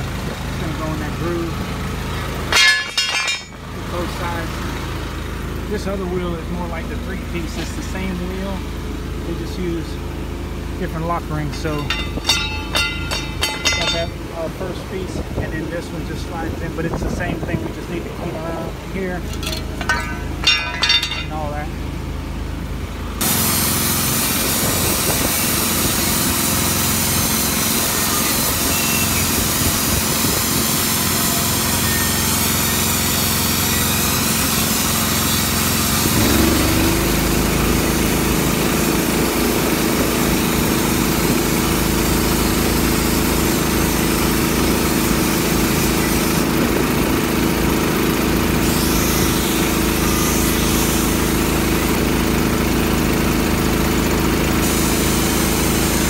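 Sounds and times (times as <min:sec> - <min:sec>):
air grinder scraping metal: 0:23.2 - 0:38.7, 0:48.5 - 0:51.7, 0:54.6 - 0:56.0.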